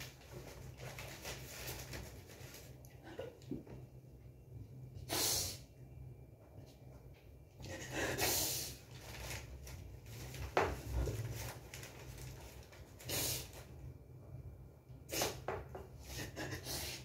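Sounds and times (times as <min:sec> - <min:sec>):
sharp paper crackle: 0:00.0 - 0:02.8, 0:08.9 - 0:13.1
paper rustling and crinkling: 0:00.0 - 0:02.9, 0:08.9 - 0:13.0
person sniffling: 0:07.6 - 0:08.8, 0:15.1 - 0:17.0.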